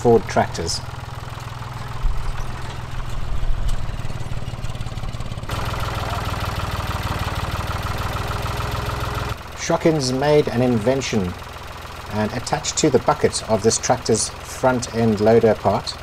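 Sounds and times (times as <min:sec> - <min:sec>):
tractor engine idling: 0:00.0 - 0:16.0.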